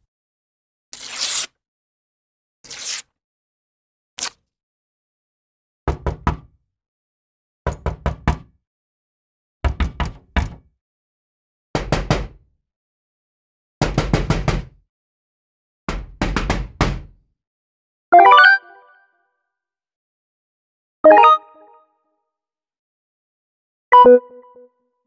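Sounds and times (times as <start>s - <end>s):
quick knocking raps: 15.9s - 17.1s.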